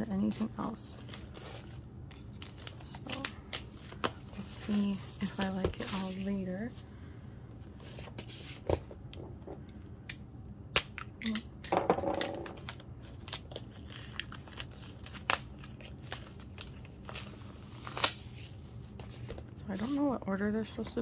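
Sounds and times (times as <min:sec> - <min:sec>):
plastic wrap crinkling: 0:00.2 - 0:06.8, 0:12.2 - 0:19.0.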